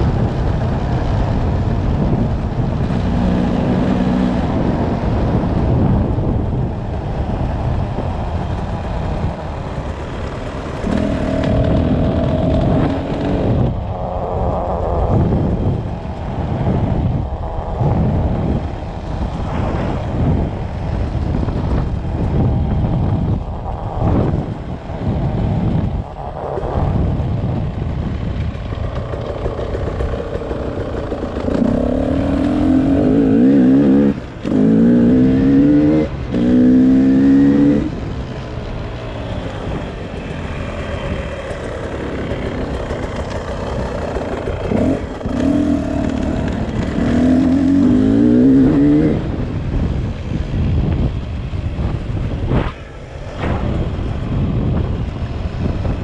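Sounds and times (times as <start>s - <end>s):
two-stroke engine revving: 10.7s - 13.7s, 28.9s - 37.9s, 40.4s - 49.5s.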